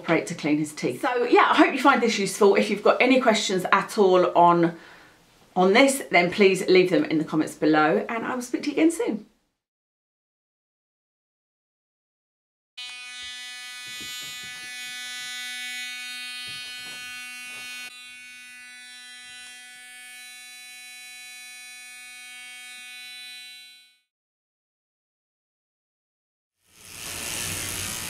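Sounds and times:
electric toothbrush buzzing: 12.8s - 24.1s, 26.6s - 28.0s.

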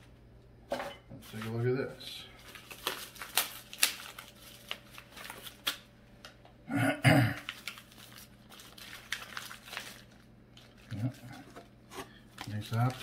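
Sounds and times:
foam and plastic bag crinkling: 1.2s - 6.4s, 7.4s - 13.0s.

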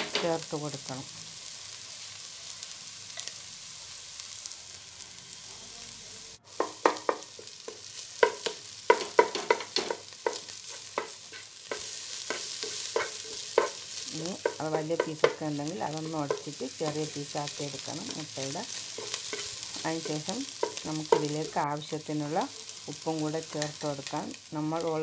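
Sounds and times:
vegetables sizzling in a pot: 0.0s - 25.0s
spatula knocking and scraping pot: 6.6s - 15.5s, 18.8s - 21.6s.

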